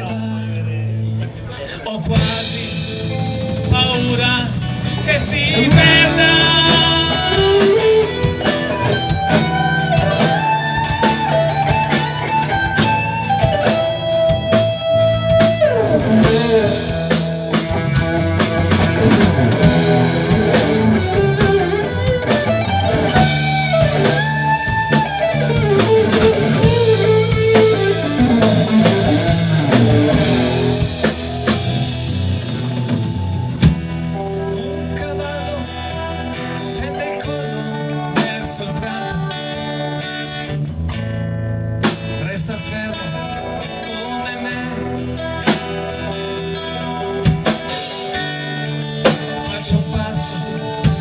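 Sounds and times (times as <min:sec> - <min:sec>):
drum kit: 0:01.5 - 0:51.0
electric guitar lead melody: 0:02.1 - 0:51.0.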